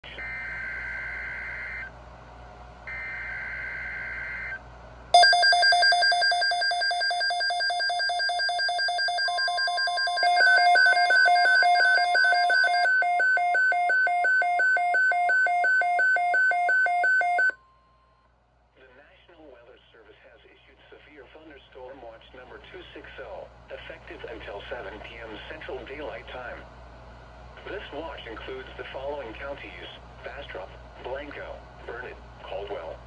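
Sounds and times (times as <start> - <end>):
steady warning tone: 0.0 - 2.0, 2.8 - 4.6, 5.2 - 17.6
rapid pulsing alarm beeps: 2.9 - 4.6, 5.2 - 17.6
second alarm pattern: 2.9 - 4.6, 5.2 - 17.6.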